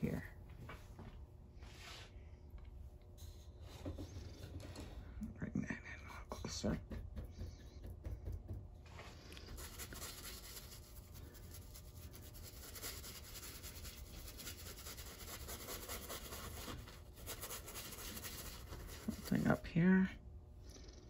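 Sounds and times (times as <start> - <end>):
brush scrubbing on canvas: 9.0 - 19.6.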